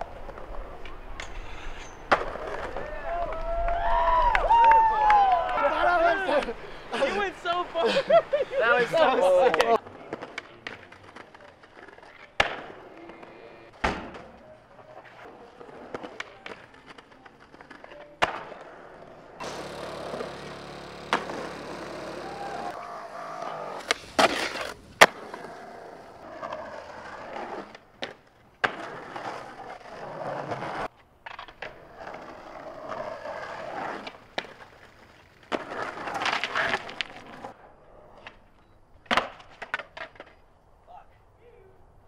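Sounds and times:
skateboard wheels rolling on concrete: 0.0s - 42.0s
skateboard tail pops and landings: 2.0s - 3.4s, 12.4s - 12.8s, 13.8s - 14.4s, 18.2s - 18.7s, 21.0s - 21.5s, 23.8s - 25.4s, 27.6s - 29.4s, 39.0s - 40.4s.

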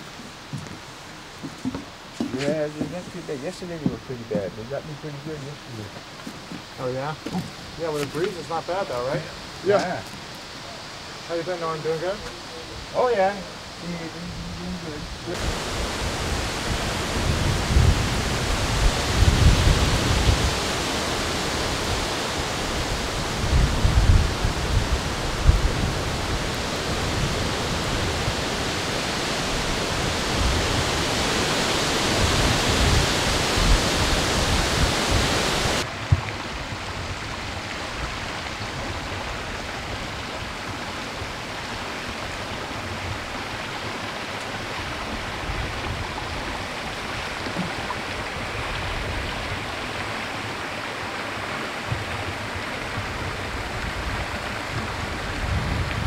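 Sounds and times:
steady outdoor hiss: 0.0s - 56.0s
wind rushing over microphone: 14.1s - 40.5s, 52.0s - 56.0s.

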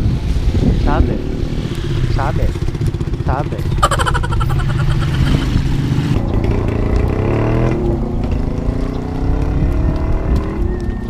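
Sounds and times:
motorcycle engine accelerating: 4.4s - 10.6s.

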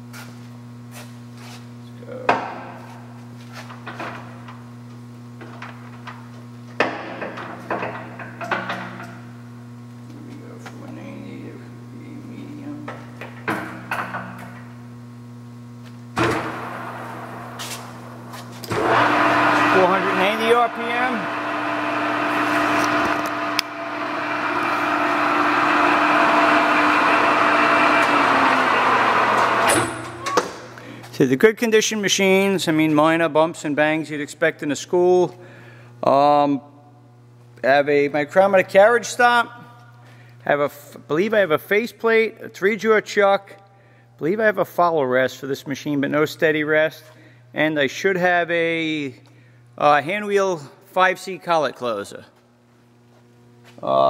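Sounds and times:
steady low hum: 0.0s - 54.0s
lathe running with gear noise: 18.6s - 29.7s.

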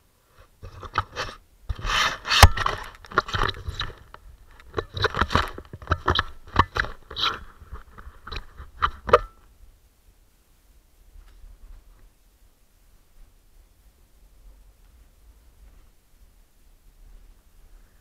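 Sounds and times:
gloved hand rubbing camera: 0.4s - 9.2s.

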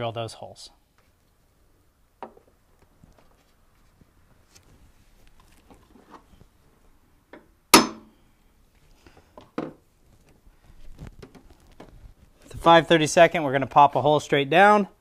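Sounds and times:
hammer striking center punch on metal: 7.7s - 8.1s.

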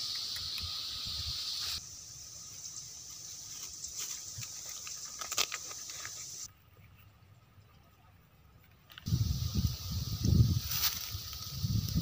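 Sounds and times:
insects droning: 0.0s - 6.5s, 9.1s - 12.0s
leaves and twigs ticking: 2.4s - 6.5s, 8.6s - 12.0s.

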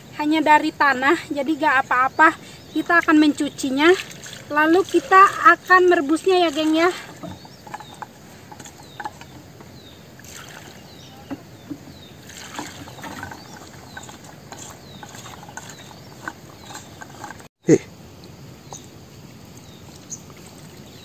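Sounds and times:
hands stirring wet nuts in pot: 3.4s - 17.5s.

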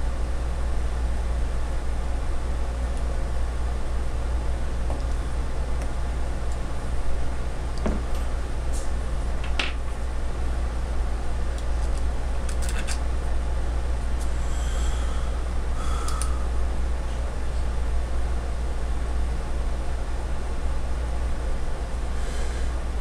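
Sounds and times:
low room hum: 0.0s - 23.0s
metal parts clicking: 11.8s - 13.0s.

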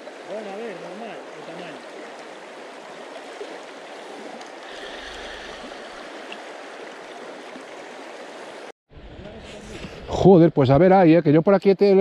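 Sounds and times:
river current rushing over stones: 0.0s - 8.7s.

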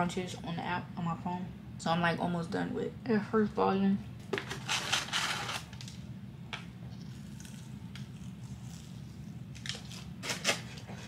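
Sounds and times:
low steady hum: 0.0s - 11.0s
crunching fried chicken: 7.0s - 10.7s.

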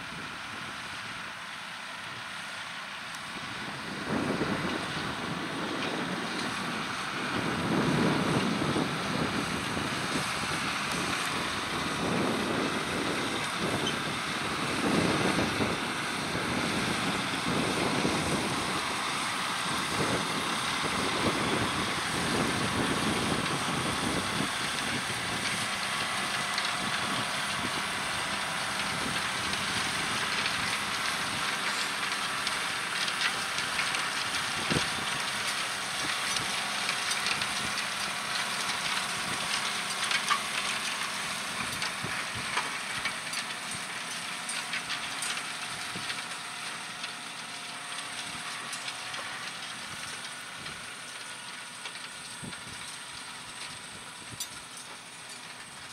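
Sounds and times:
tractor diesel engine under load: 0.0s - 55.9s.

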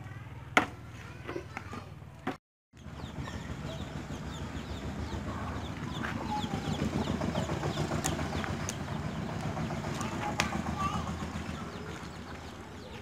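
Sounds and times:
chickens clucking: 2.8s - 13.0s.

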